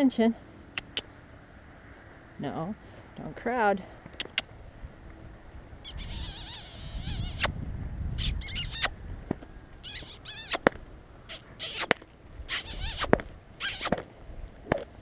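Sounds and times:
person making kissing noises: 0.8s - 1.1s, 4.2s - 4.5s, 5.8s - 7.5s, 8.2s - 8.9s, 9.8s - 10.7s, 11.3s - 14.1s
sharp clicks: 4.1s - 4.5s.

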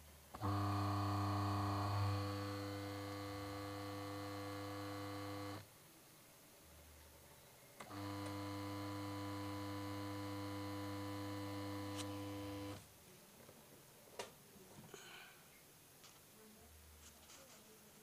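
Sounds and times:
washing machine motor humming: 0.4s - 5.6s, 7.8s - 12.8s.

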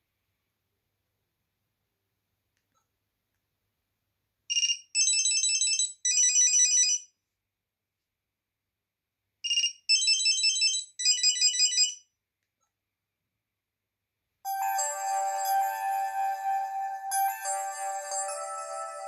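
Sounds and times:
mobile phone ringtone: 4.6s - 7.0s, 9.5s - 12.0s, 14.5s - 19.0s.

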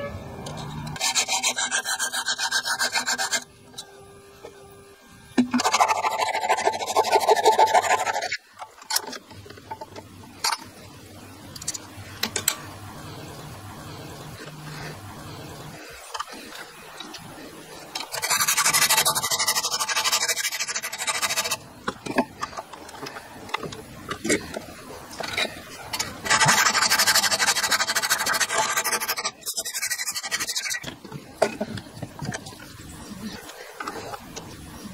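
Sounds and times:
metal rasping: 0.0s - 4.3s, 5.4s - 9.8s, 15.7s - 32.5s
hacksaw cutting metal rod: 0.5s - 3.5s, 18.0s - 21.6s, 25.2s - 31.0s.

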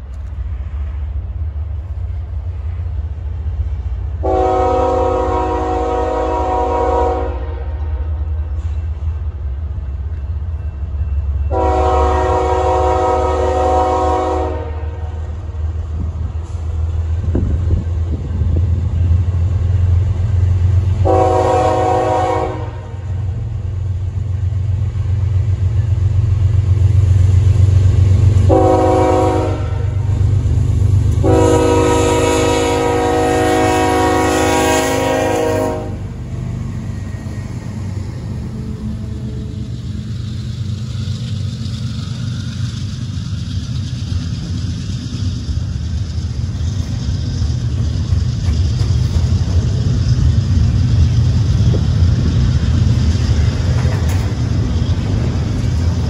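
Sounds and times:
locomotive air horn: 4.2s - 8.0s, 11.5s - 15.2s, 20.9s - 23.1s, 28.4s - 30.0s, 31.2s - 36.1s
diesel engine rumble: 7.7s - 56.0s.

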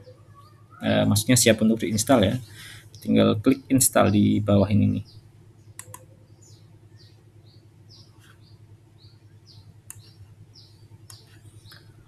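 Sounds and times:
faint low hum: 0.0s - 12.0s
small bird chirping: 0.0s - 12.0s
sharp clicks: 5.7s - 6.1s, 9.9s - 10.2s, 11.0s - 11.9s.

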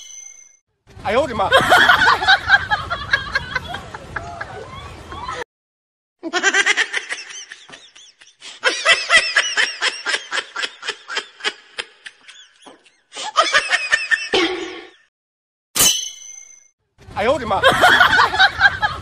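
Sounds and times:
high-pitched laughter: 1.5s - 5.4s, 6.2s - 15.0s.

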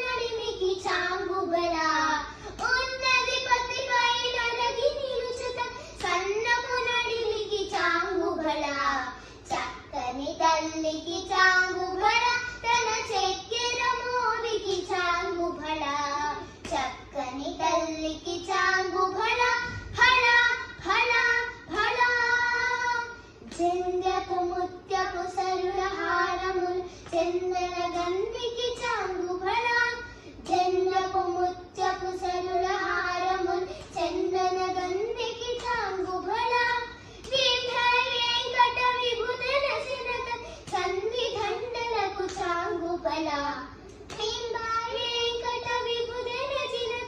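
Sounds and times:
girls singing: 10.6s - 47.0s.

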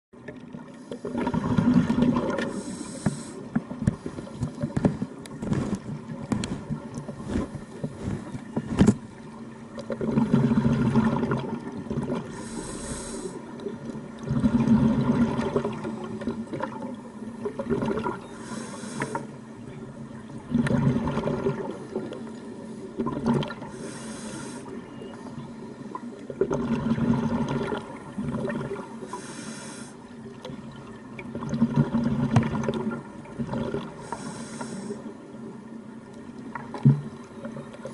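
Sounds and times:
exhaled bubbles gurgling: 0.2s - 37.9s
regulator inhale hiss: 2.5s - 4.4s, 12.3s - 13.5s, 18.3s - 19.4s, 23.7s - 24.8s, 29.0s - 30.1s, 34.0s - 35.2s.

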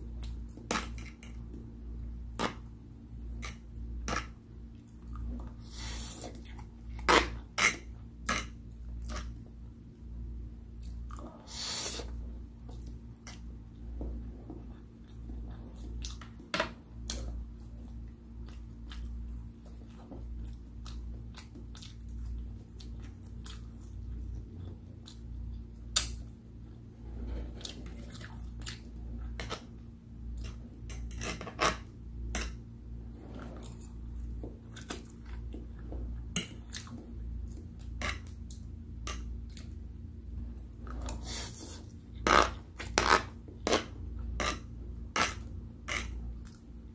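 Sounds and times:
close chewing of noodles: 18.4s - 25.4s.

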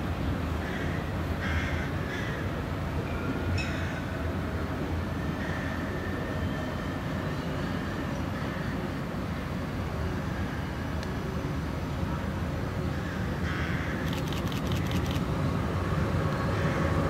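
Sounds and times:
tram running rumble: 0.0s - 17.0s
sharp clicks: 14.0s - 15.2s.

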